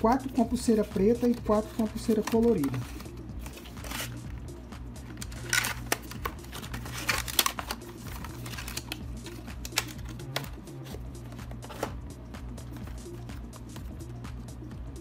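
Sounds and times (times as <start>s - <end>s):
cardboard boxes handled: 1.4s - 4.1s.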